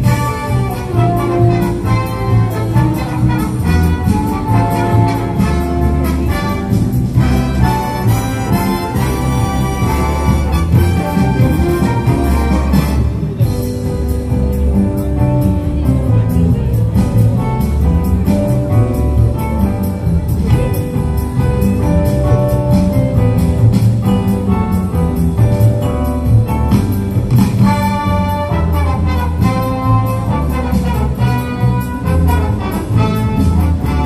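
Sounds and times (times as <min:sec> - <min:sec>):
brass-like notes: 0:00.0 - 0:13.7, 0:27.5 - 0:34.0
christmas music over loudspeakers: 0:00.0 - 0:34.0.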